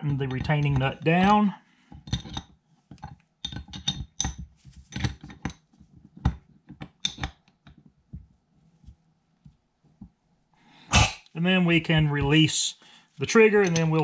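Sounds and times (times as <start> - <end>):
metal wrench clinking on nut: 2.0 - 5.6, 7.0 - 7.3, 13.5 - 14.0.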